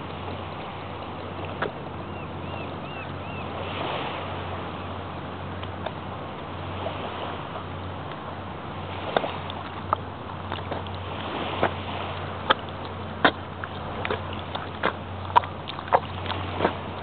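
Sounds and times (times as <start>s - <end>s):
feet squelching in mud: 9.1s - 17.0s.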